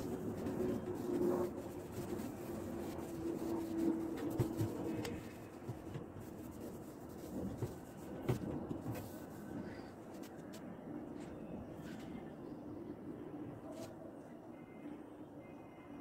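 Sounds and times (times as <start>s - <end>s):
cloth wiping wooden cabinets: 0.0s - 9.4s.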